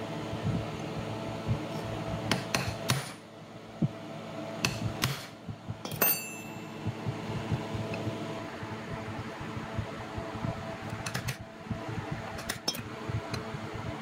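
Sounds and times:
hammer tapping metal punch: 0:04.6 - 0:07.0.

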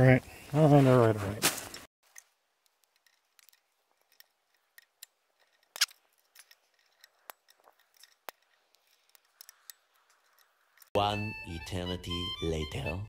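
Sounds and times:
metal tools clicking and scraping: 0:02.1 - 0:11.0.

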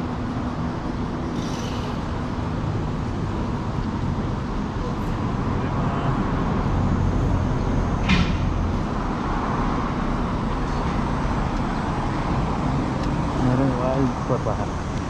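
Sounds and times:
road traffic rumble: 0:00.0 - 0:15.0
high squeak: 0:01.4 - 0:02.1.

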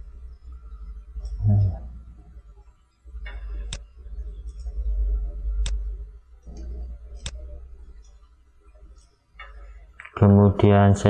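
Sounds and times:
low electrical hum: 0:00.0 - 0:11.0
computer mouse clicks: 0:01.2 - 0:01.5, 0:03.2 - 0:04.9, 0:05.5 - 0:10.2.

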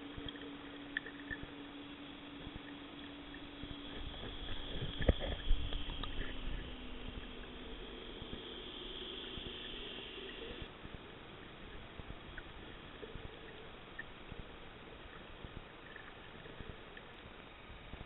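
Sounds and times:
faint clicks and crackles: 0:00.0 - 0:18.0
underwater hiss: 0:02.2 - 0:10.7.

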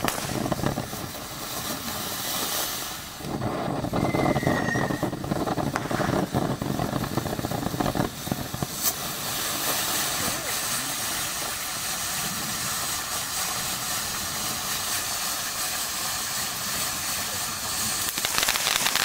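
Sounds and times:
firework fountain hissing: 0:00.0 - 0:19.0
small crackles: 0:17.9 - 0:19.0.

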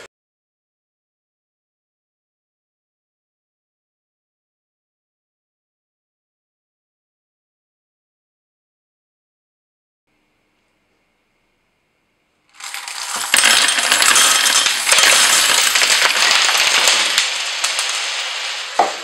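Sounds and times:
coins clattering onto wooden shelf: 0:12.6 - 0:18.9.

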